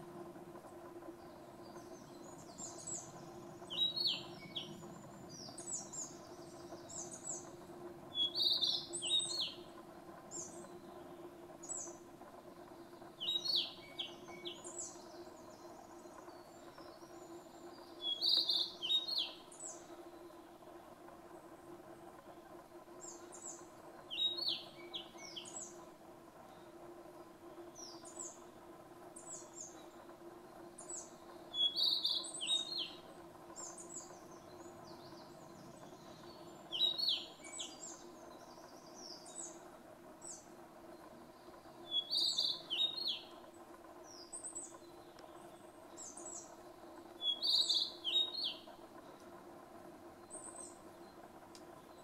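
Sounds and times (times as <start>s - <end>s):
bird singing short phrases: 3.7s - 6.1s, 8.2s - 9.7s, 13.2s - 15.0s, 17.9s - 19.8s, 23.0s - 25.7s, 30.9s - 33.0s, 36.1s - 38.0s, 41.8s - 43.4s, 47.2s - 48.7s.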